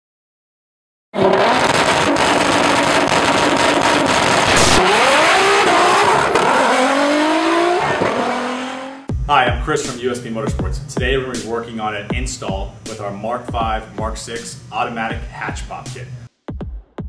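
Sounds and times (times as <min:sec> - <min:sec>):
car engine revving high: 0:01.2 - 0:09.1.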